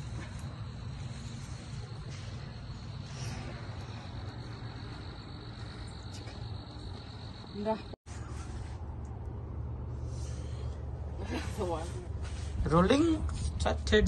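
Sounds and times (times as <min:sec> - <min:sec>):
crickets chirping: 0:00.0 - 0:08.0.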